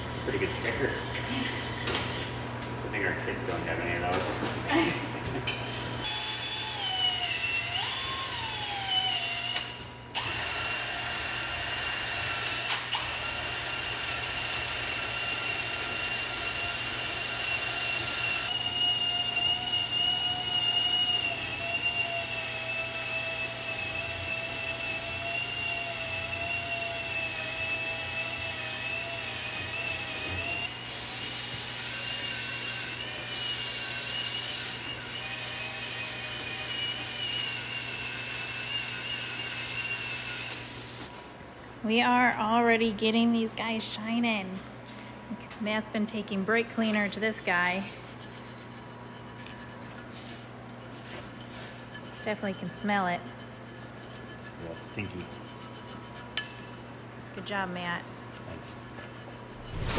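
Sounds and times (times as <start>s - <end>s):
power drill whining: 6.0s - 25.0s.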